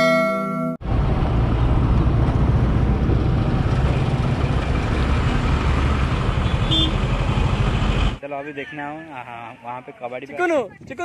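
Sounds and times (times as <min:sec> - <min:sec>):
wind rushing on microphone: 0:10.5 - 0:11.0.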